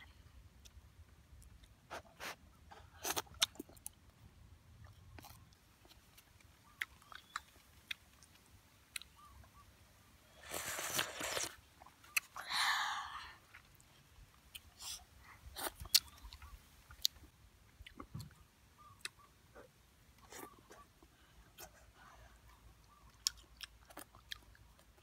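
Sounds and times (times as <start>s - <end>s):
soft chewing with clicks: 3.0s - 4.2s, 4.8s - 9.6s, 11.8s - 12.4s, 13.5s - 25.0s
loud slurps: 10.4s - 11.6s.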